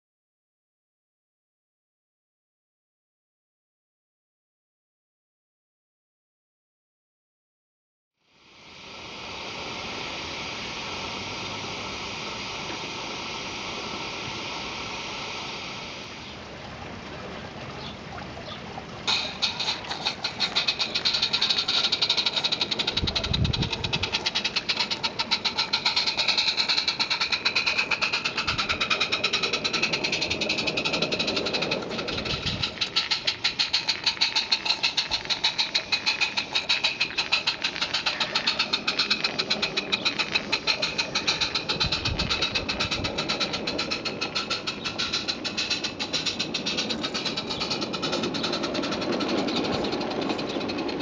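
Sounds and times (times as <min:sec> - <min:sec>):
steam locomotive chuffing: 0:08.6 - 0:16.4, 0:19.0 - 0:51.0.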